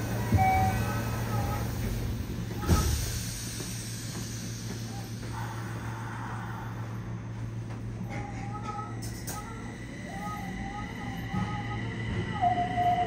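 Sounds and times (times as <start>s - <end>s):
train car low hum: 0.0s - 13.0s
thump with hiss of air: 2.6s - 4.8s.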